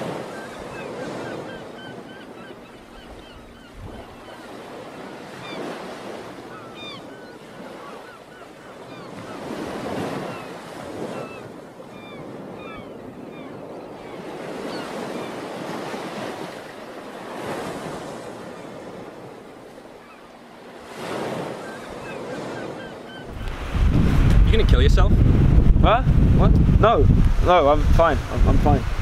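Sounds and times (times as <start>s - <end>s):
sea waves on rocky shore: 0.0s - 29.0s
wind on microphone: 3.0s - 4.4s, 23.2s - 29.0s.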